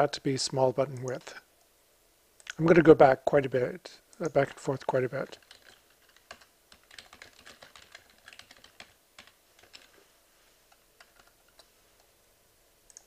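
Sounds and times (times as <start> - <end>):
computer keyboard typing: 5.3 - 10.0, 10.7 - 11.7.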